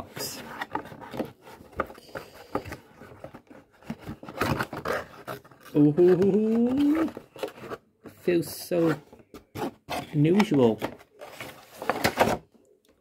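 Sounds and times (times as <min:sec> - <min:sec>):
cardboard box handled and opened: 0:00.0 - 0:12.5
person saying ooh: 0:05.8 - 0:07.2.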